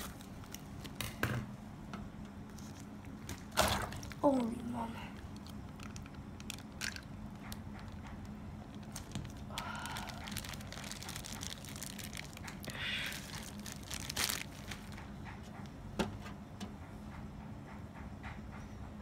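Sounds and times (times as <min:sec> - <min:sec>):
plastic bag crinkling: 0:00.0 - 0:01.0, 0:02.5 - 0:15.0.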